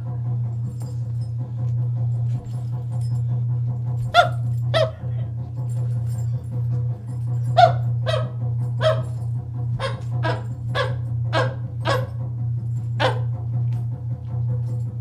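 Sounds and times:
steady low hum: 0:00.0 - 0:15.0
man making barking calls: 0:04.2 - 0:05.3, 0:07.6 - 0:09.2, 0:09.8 - 0:12.1.

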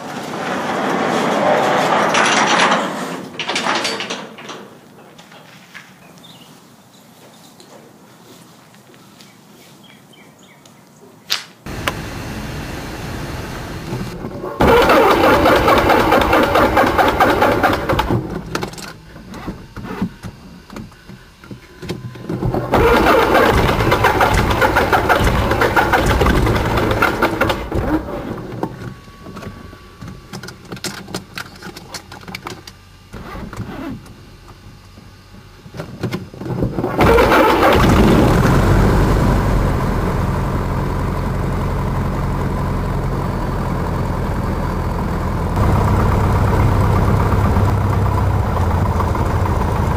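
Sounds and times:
propeller turning over: 0:00.0 - 0:05.3, 0:11.7 - 0:33.8, 0:36.4 - 0:49.9
aircraft engine idling: 0:11.7 - 0:19.3, 0:22.6 - 0:30.3, 0:37.0 - 0:49.9.

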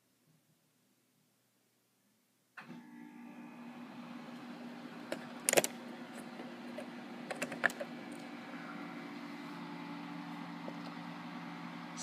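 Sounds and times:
steady low hum: 0:04.1 - 0:12.0.

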